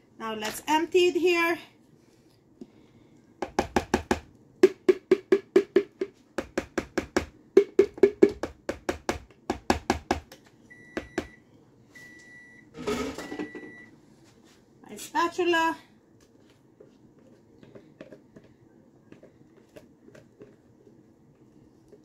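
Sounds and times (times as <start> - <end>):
plastic spatula knocking on container: 3.4 - 10.3, 17.6 - 18.5, 19.1 - 20.6
microwave oven beeps: 10.7 - 14.0.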